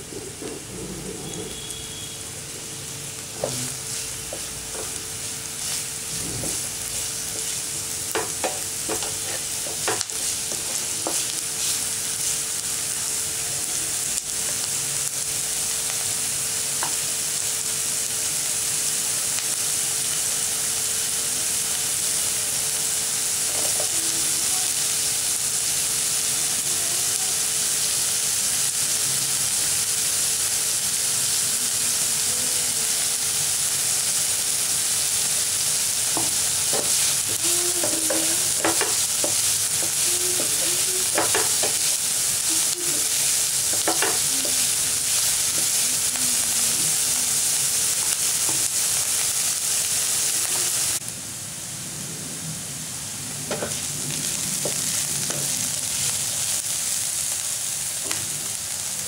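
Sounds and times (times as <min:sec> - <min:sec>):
onions sizzling in hot oil: 0:00.0 - 0:59.0
wooden spatula scraping a pan: 0:08.2 - 0:12.3.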